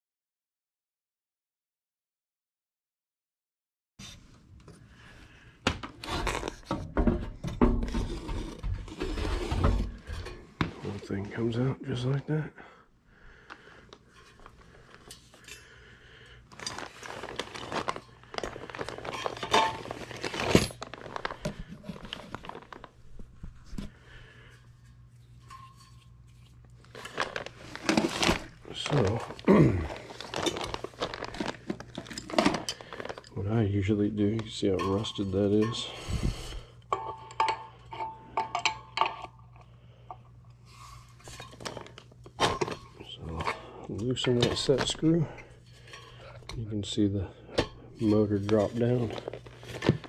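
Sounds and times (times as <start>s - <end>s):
plastic crinkling: 16.5s - 23.4s, 26.5s - 33.5s, 41.3s - 42.8s, 48.0s - 50.0s.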